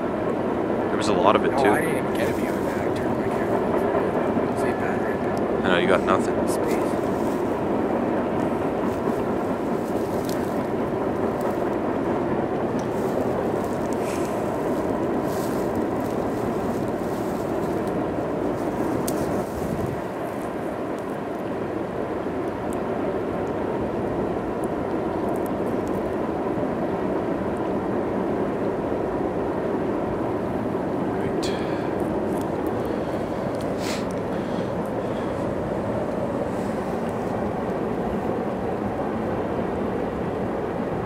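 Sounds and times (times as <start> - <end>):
train wheels rumbling on rail: 1.1 - 22.1.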